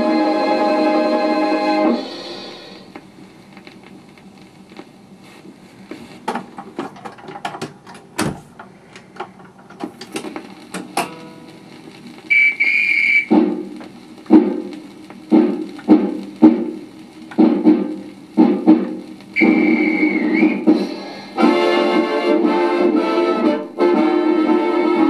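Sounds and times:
record surface hiss: 0.0s - 25.0s
record changer clicks and clunks: 4.8s - 19.1s
record dropping onto platter: 6.2s - 8.4s, 9.2s - 11.4s
steady beat from speaker: 13.2s - 21.6s.

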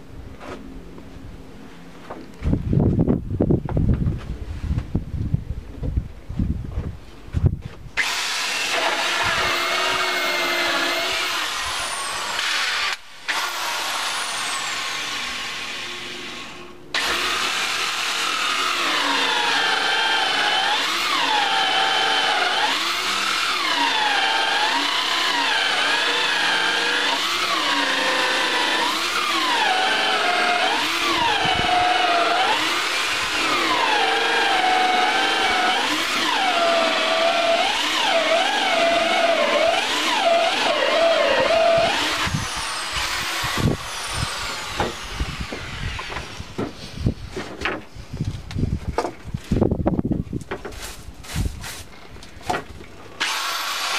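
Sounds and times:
electric drill boring into wood: 8.0s - 46.6s, 53.2s - 53.9s.

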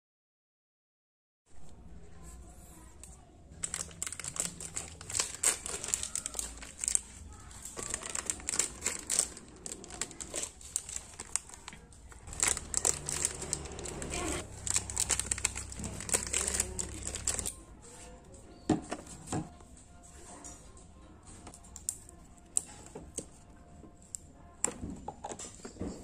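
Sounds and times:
plastic wrapping crinkling and tearing: 3.5s - 17.6s.

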